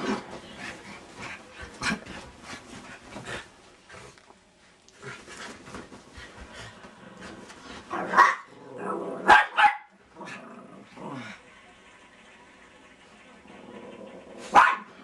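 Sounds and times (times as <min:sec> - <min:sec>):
small dogs barking: 0:08.0 - 0:08.5, 0:09.2 - 0:10.0, 0:14.5 - 0:15.0.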